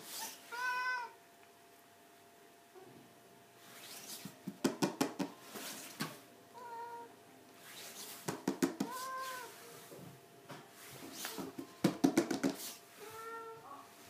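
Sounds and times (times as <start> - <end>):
cat meowing: 0.5 - 1.2, 6.6 - 7.1, 8.8 - 9.6, 13.0 - 13.9.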